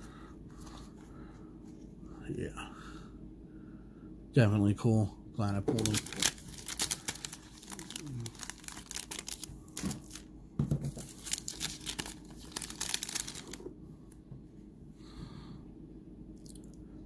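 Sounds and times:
foil wrapper crinkling and tearing: 0:05.7 - 0:10.3, 0:10.9 - 0:13.6.

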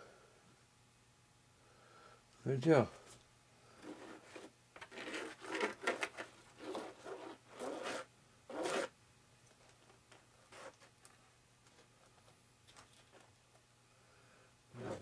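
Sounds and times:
wooden stick scraping epoxy: 0:03.8 - 0:06.0, 0:06.6 - 0:08.9.

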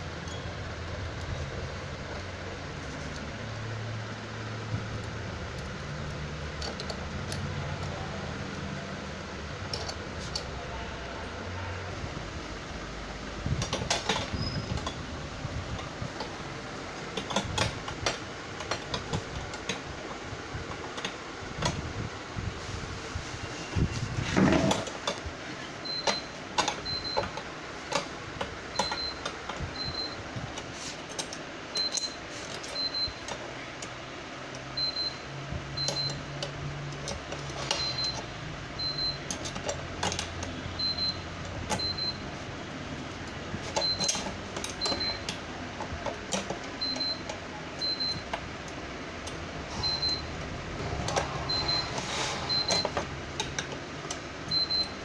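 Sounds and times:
steady fan hum: 0:00.0 - 0:55.0
clicks and knocks of parts handled: 0:04.9 - 0:08.6, 0:09.6 - 0:10.6, 0:17.0 - 0:20.0, 0:26.0 - 0:29.7, 0:30.5 - 0:34.6, 0:39.2 - 0:40.5, 0:50.8 - 0:54.7.

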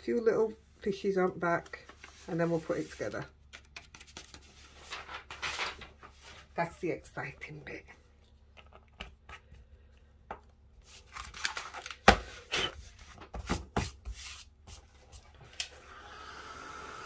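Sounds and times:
paper rustling: 0:01.6 - 0:06.6, 0:10.8 - 0:15.6.

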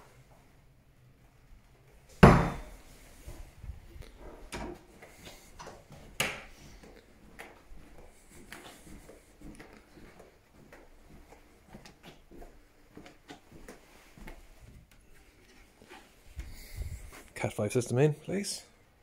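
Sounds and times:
sharp knock: 0:02.2 - 0:02.7
footsteps on carpet: 0:04.9 - 0:14.8.

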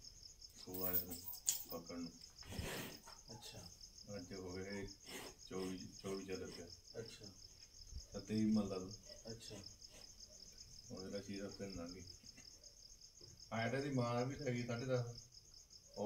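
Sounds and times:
crickets chirring: 0:00.0 - 0:16.0.

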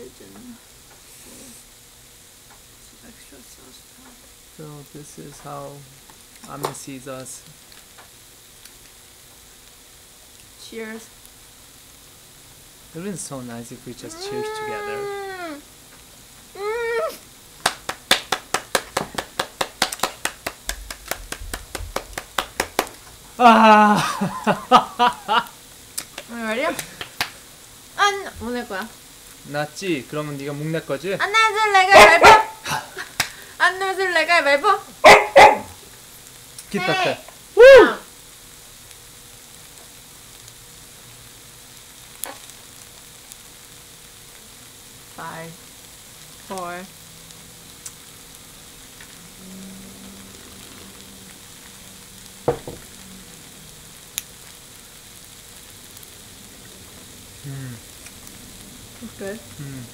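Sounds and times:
food sizzling in grill pan: 0:00.0 - 0:59.9
woman clapping hands: 0:17.6 - 0:23.0, 0:26.0 - 0:27.4, 0:33.2 - 0:33.4.

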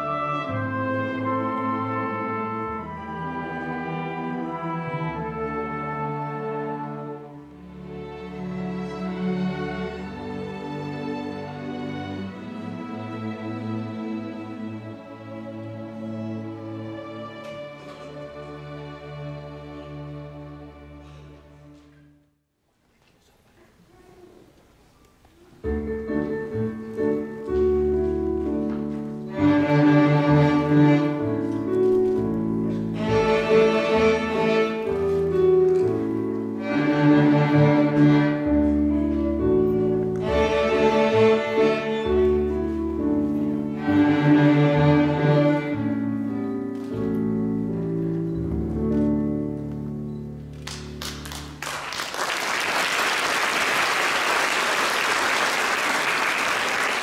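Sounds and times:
violins and cellos playing: 0:00.0 - 0:22.0, 0:25.8 - 0:49.7
applause: 0:50.6 - 0:57.0.

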